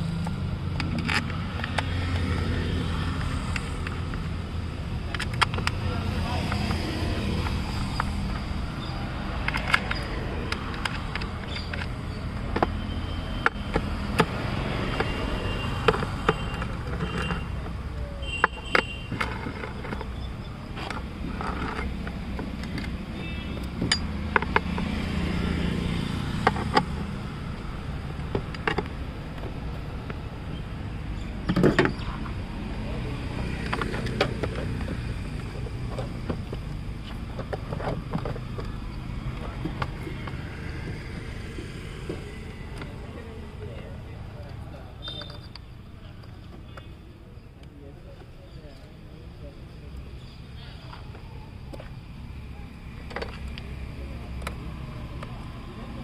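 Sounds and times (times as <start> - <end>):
hands handling plastic parts: 13.4 - 23.0.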